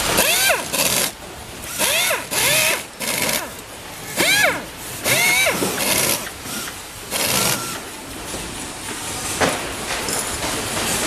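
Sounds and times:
pneumatic tool hissing and whining: 0:00.1 - 0:07.8.

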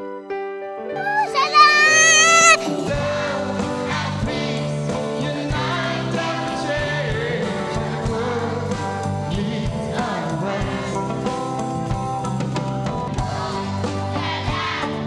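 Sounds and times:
band with electric guitar: 0:01.0 - 0:15.0
children's choir singing: 0:01.7 - 0:08.6, 0:13.2 - 0:15.0
man singing pop song: 0:05.0 - 0:11.2.

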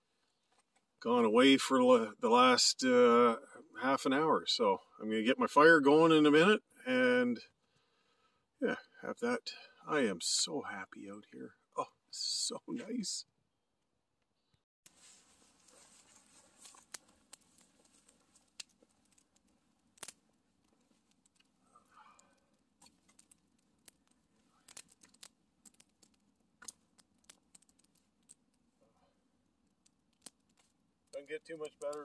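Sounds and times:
campfire crackling and popping: 0:08.7 - 0:13.2, 0:14.9 - 0:32.0.

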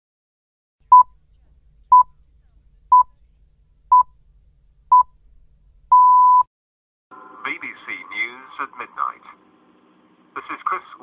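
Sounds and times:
short high beeps: 0:05.9 - 0:06.5.

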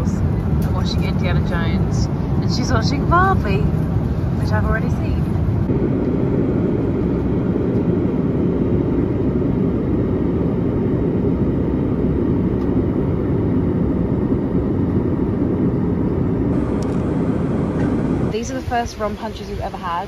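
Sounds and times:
airliner cabin roar: 0:00.0 - 0:20.0.

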